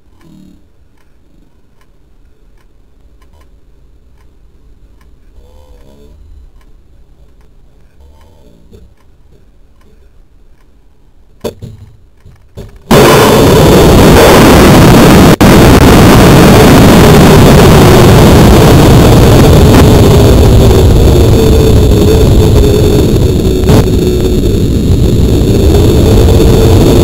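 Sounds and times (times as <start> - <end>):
wind noise on microphone: 12.9 - 27.0.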